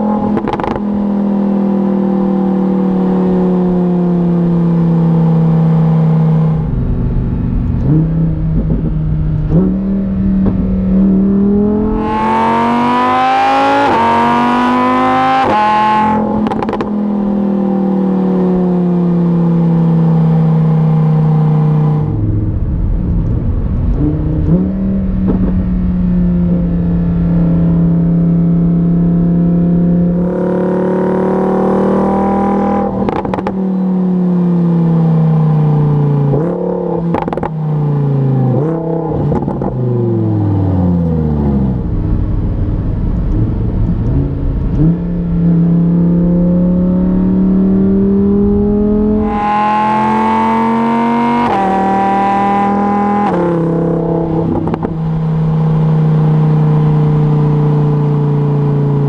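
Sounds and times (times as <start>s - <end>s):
car exhaust while driving: 0.0s - 59.0s
engine accelerating hard: 0.0s - 59.0s
engine rumbling with sharp pops: 0.3s - 0.8s, 7.7s - 9.8s, 10.4s - 10.8s, 16.3s - 16.9s, 22.4s - 25.8s, 32.9s - 33.6s, 36.3s - 37.6s, 39.2s - 39.8s, 41.8s - 45.3s, 53.2s - 55.2s.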